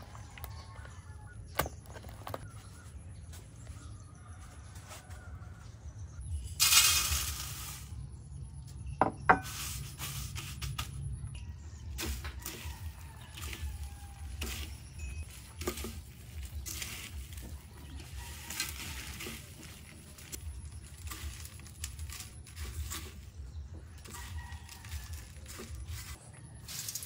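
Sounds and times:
breadcrumbs rustling on metal tray: 0:12.0 - 0:27.0.

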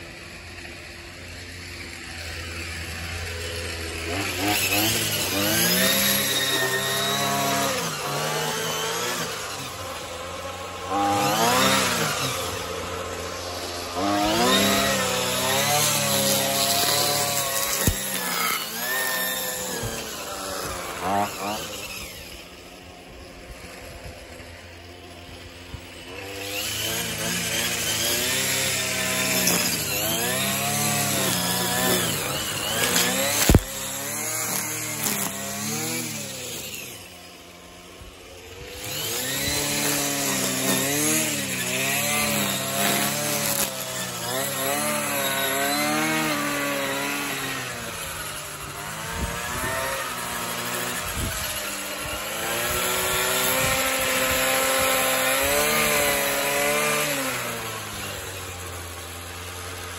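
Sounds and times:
string trimmer engine revving: 0:00.0 - 0:59.9.

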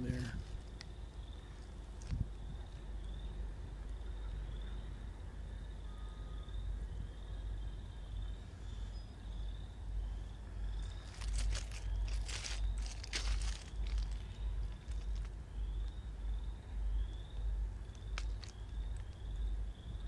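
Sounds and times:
wind rumble on microphone: 0:00.0 - 0:05.4
insect trilling: 0:09.3 - 0:20.0
footsteps through grass: 0:10.8 - 0:16.0.

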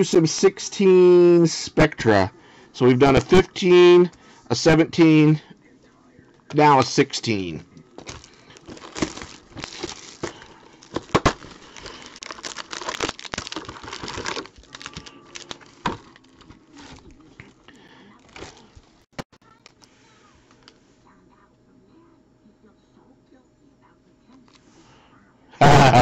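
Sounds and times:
plastic wrapping tearing and crinkling: 0:08.0 - 0:17.6, 0:18.2 - 0:19.9.

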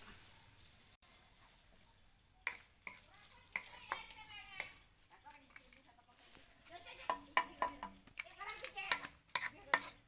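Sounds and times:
utensil tapping iron pan: 0:07.0 - 0:10.0.

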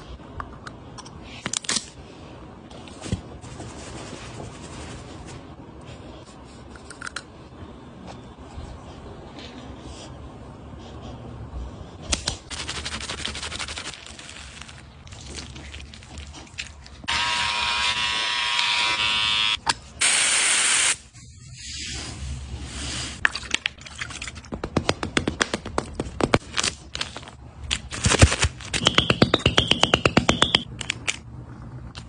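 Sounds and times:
electric shaver buzzing: 0:17.1 - 0:20.9.

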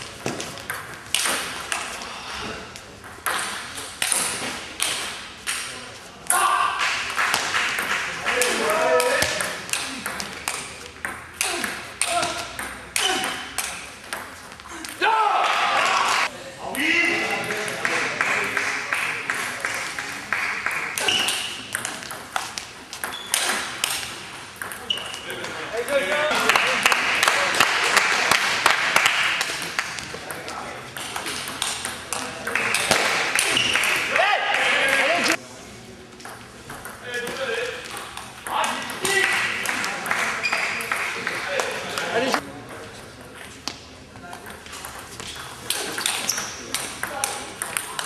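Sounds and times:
table tennis ball hits: 0:00.2 - 0:02.0, 0:03.0 - 0:05.8, 0:06.8 - 0:15.0, 0:20.6 - 0:26.5, 0:27.4 - 0:34.2, 0:44.4 - 0:48.0.

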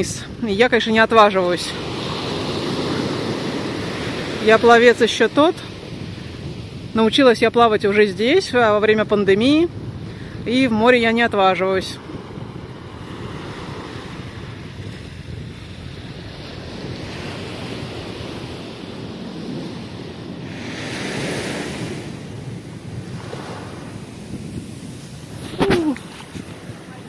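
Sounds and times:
surf breaking on beach: 0:00.0 - 0:27.0
wind buffeting microphone: 0:00.0 - 0:27.0.

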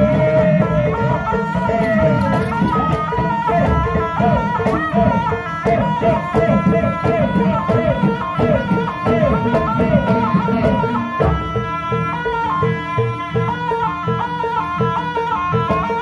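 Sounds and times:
gamelan ensemble playing: 0:00.0 - 0:04.9
drums beating steady rhythm: 0:00.0 - 0:16.0.

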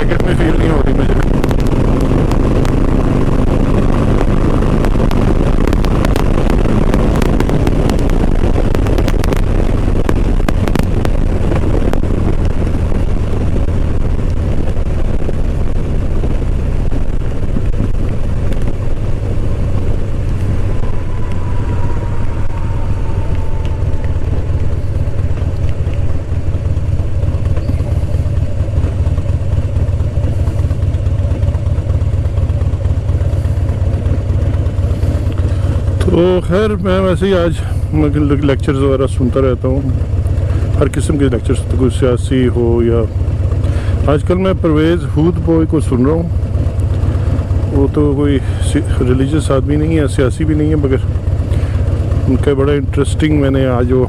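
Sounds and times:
vehicle engine and road noise: 0:00.0 - 0:54.0
faint falling tone: 0:20.2 - 0:25.9.

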